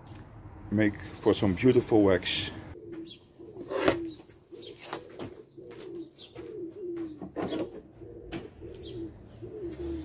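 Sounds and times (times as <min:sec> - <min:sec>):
pigeon cooing: 0:02.7 - 0:10.0.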